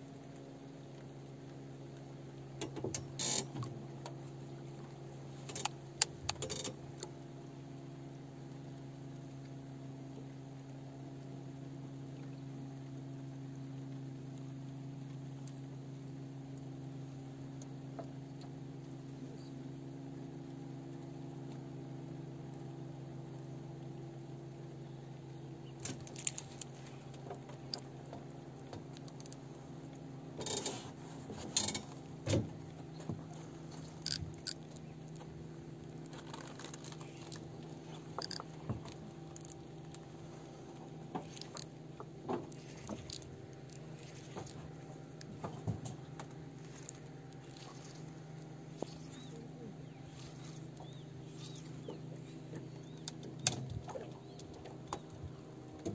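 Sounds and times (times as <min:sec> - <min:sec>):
low motor hum: 0:00.0 - 0:55.9
fishing reel clicking and rattling: 0:34.0 - 0:34.7, 0:36.1 - 0:39.6, 0:41.3 - 0:41.7, 0:42.8 - 0:44.6.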